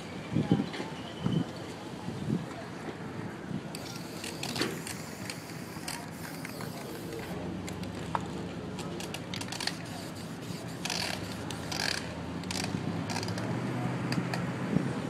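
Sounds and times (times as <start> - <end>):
spray paint can hissing: 3.8 - 7.4, 9.4 - 12.0
cans clicking and rattling: 9.0 - 13.4.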